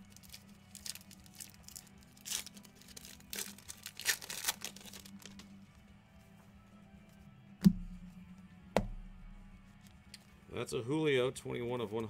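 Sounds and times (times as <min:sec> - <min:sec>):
plastic wrapper crinkling and tearing: 0:00.0 - 0:05.6.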